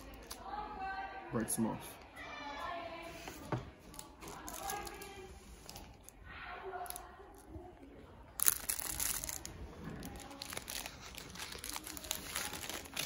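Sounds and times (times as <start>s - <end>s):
wrapper crackling: 3.9s - 6.0s, 8.4s - 13.0s.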